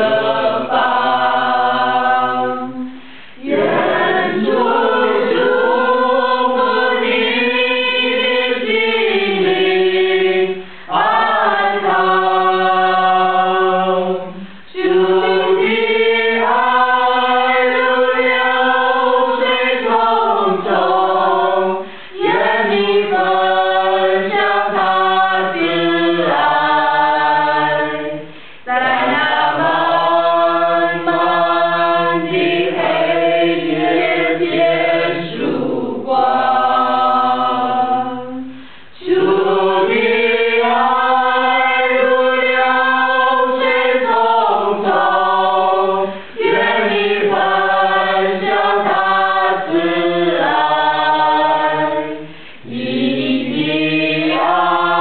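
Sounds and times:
choir singing: 0.0s - 55.0s.

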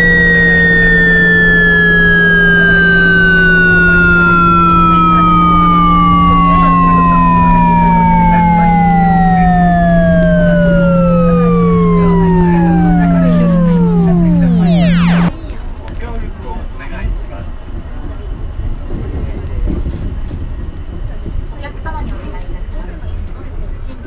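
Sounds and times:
electric train motor whine gliding down: 0.0s - 15.3s
steady low hum: 0.0s - 15.3s.

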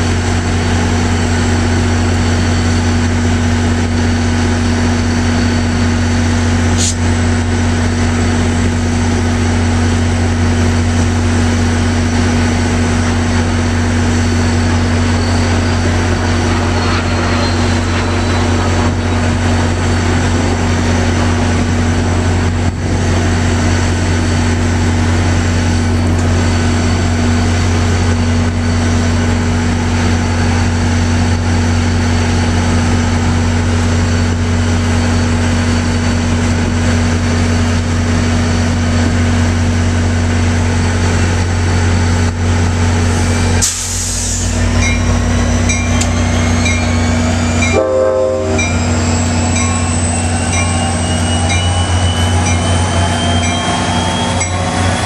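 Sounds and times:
engine whine rising: 0.0s - 55.0s
crossing bells ringing: 13.4s - 22.4s, 44.6s - 55.0s
air hiss: 43.6s - 44.6s.

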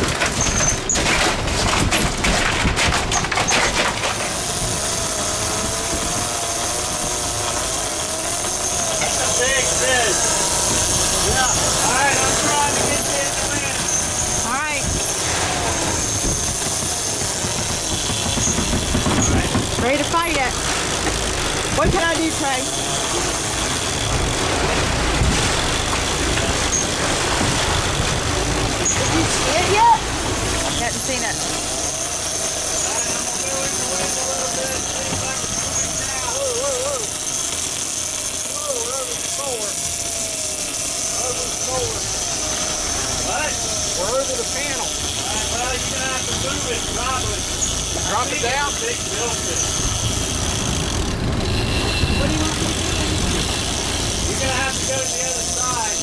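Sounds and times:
wind and sea rushing: 0.0s - 56.0s.

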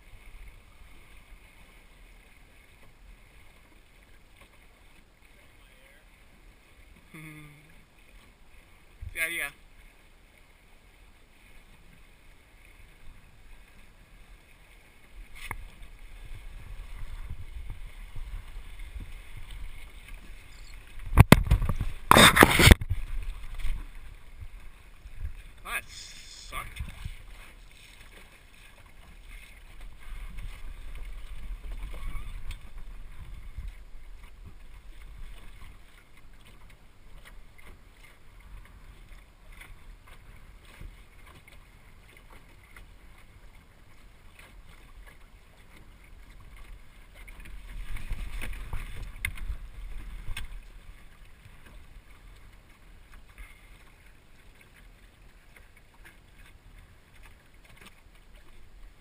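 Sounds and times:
water rushing along a hull: 0.0s - 59.0s
wind rumbling on microphone: 15.2s - 27.7s, 29.6s - 35.9s, 47.4s - 51.6s.

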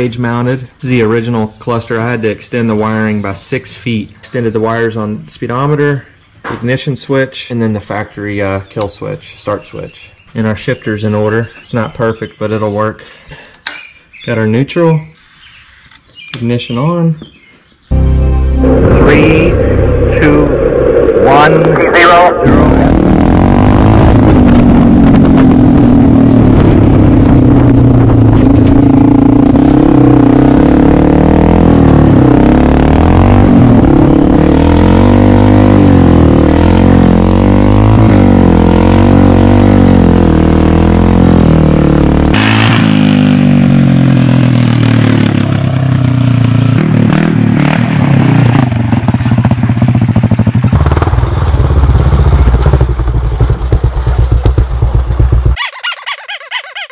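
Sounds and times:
go-kart engine revving: 18.6s - 56.9s.

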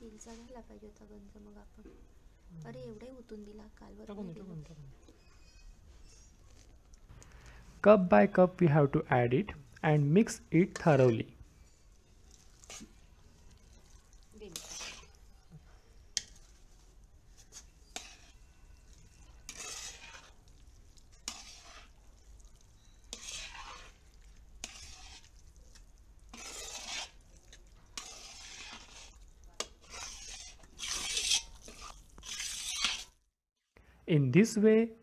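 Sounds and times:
spoon scraping thick wet mixture: 8.3s - 33.2s.

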